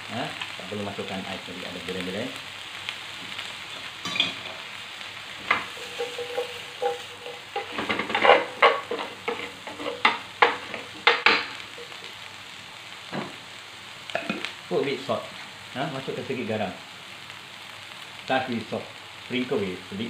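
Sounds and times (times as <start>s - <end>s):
vegetables sizzling in grill pan: 0.0s - 20.0s
spatula knocking and scraping pan: 5.4s - 12.0s.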